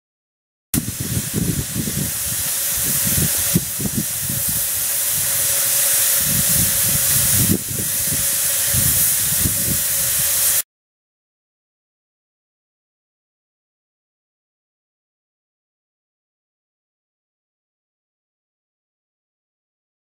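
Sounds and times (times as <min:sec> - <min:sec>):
loud hiss of steam: 0:00.8 - 0:10.6.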